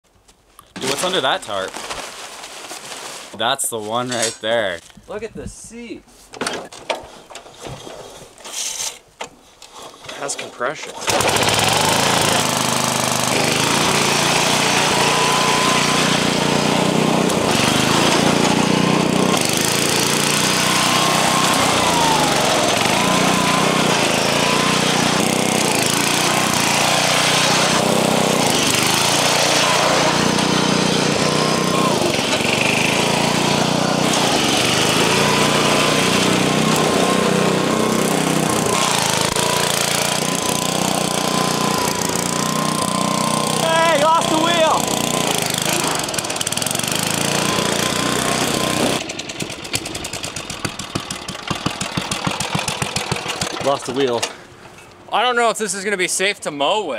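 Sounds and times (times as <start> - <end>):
lawn mower engine revving: 10.1 - 54.6.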